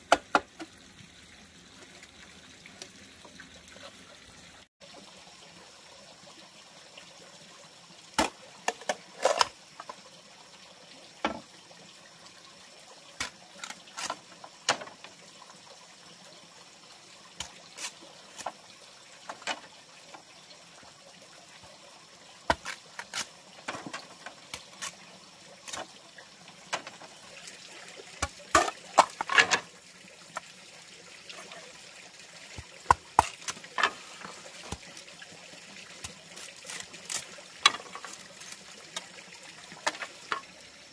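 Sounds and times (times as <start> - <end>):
faint water trickle: 0.6 - 40.9
machete chopping bamboo: 22.5 - 23.8, 32.6 - 33.6.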